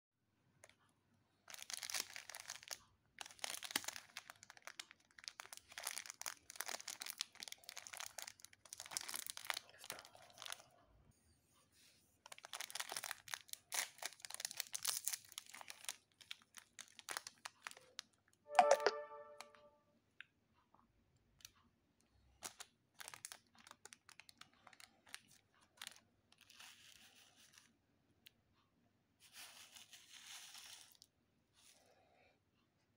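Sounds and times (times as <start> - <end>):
plastic sachet crinkling and tearing: 1.5 - 10.6, 12.3 - 18.2, 22.4 - 27.7.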